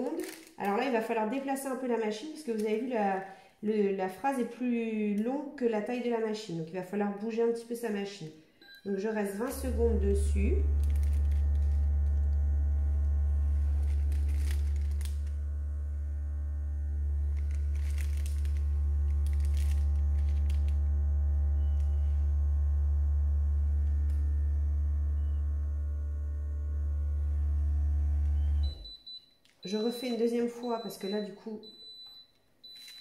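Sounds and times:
parchment paper crinkling: 0:00.0 - 0:01.0, 0:09.4 - 0:22.6
heat press humming: 0:08.6 - 0:28.9.

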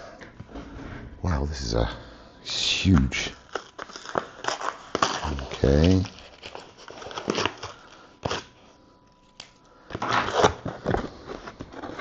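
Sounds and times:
plastic bags crinkling: 0:03.3 - 0:12.0.

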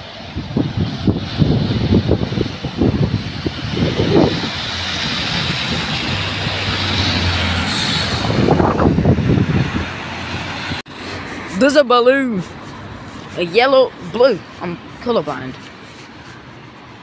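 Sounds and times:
tyres hissing on wet road: 0:00.0 - 0:17.0.

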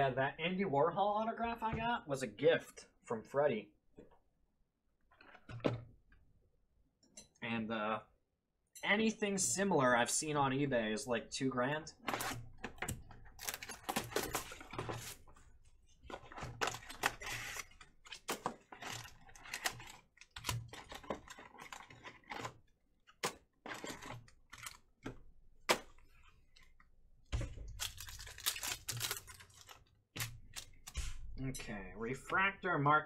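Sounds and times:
cardboard and foil rustling: 0:13.3 - 0:15.4, 0:16.1 - 0:22.5, 0:27.5 - 0:31.2
plastic wrap crinkling: 0:27.6 - 0:31.1.

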